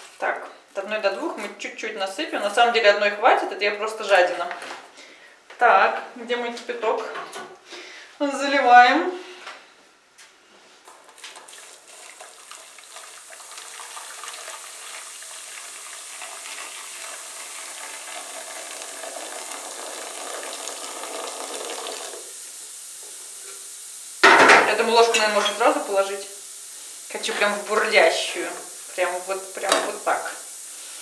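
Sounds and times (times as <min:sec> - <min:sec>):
boiling water pouring into pot: 0:11.1 - 0:31.0
hot solution fizzing: 0:11.1 - 0:31.0.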